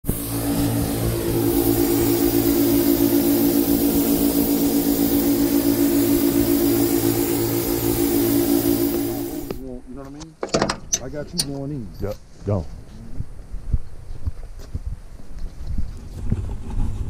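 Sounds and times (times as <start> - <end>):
engine droning with pulsing throb: 0.0 - 9.6.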